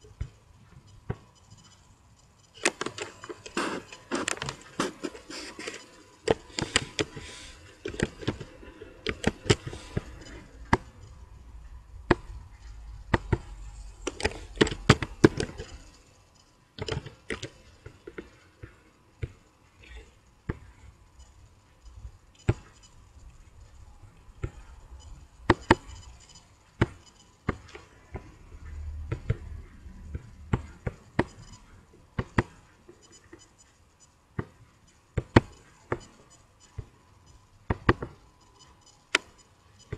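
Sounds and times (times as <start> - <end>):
mouse and keyboard clicks: 2.6 - 7.2.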